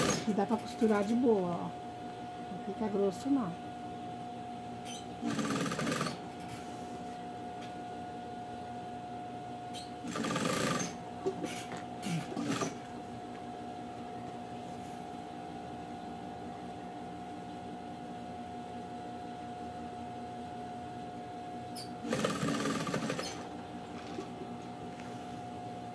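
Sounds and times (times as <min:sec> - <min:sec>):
sewing machine humming: 0:00.0 - 0:00.7, 0:05.2 - 0:06.3, 0:10.0 - 0:12.9, 0:22.0 - 0:24.3.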